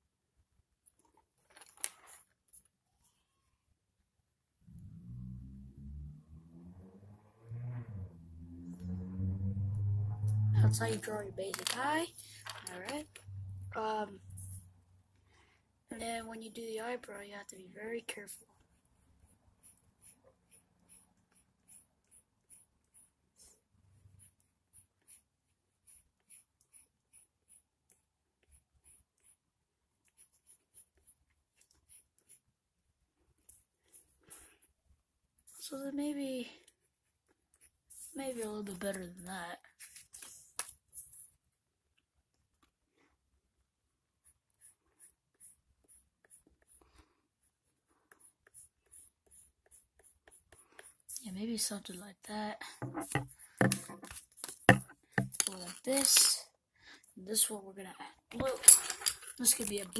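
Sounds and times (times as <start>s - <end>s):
pencil scratching on card: 18.1s - 32.5s, 33.4s - 34.8s, 36.6s - 38.9s, 44.2s - 51.2s, 52.8s - 55.3s.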